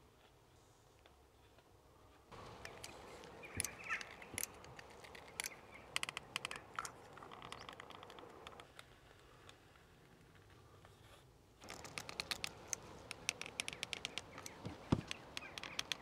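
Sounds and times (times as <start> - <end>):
faint bird chirps: 2.4 - 4.6, 12.9 - 16.0
caulking gun clicking: 2.4 - 8.8, 11.6 - 16.0.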